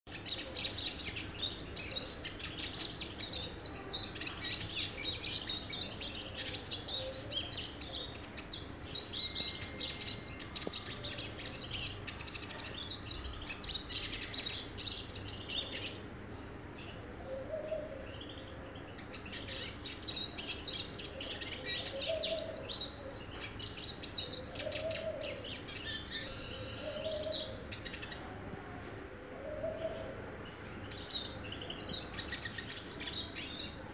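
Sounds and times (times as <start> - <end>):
small bird singing high twitters: 0.1 - 28.3, 29.7 - 33.9.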